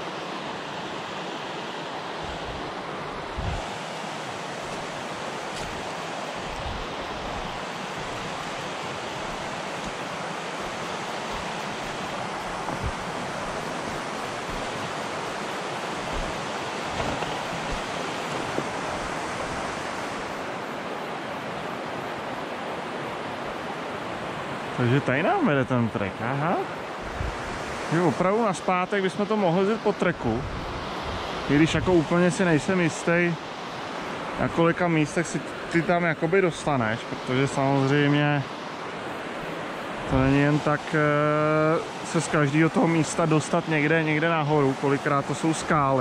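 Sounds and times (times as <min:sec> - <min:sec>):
river water running over rocks: 0:00.0 - 0:46.0
low thumps on microphone: 0:12.6 - 0:13.1, 0:16.1 - 0:18.8.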